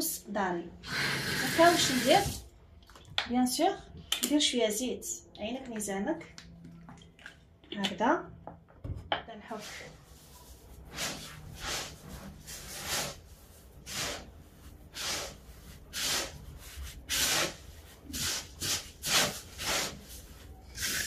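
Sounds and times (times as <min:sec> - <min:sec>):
hands rubbing grains gritty swishing: 0:09.6 - 0:21.0.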